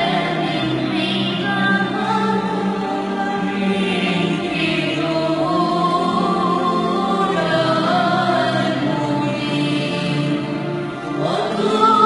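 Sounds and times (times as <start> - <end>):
sustained accompaniment: 0.0 - 12.0.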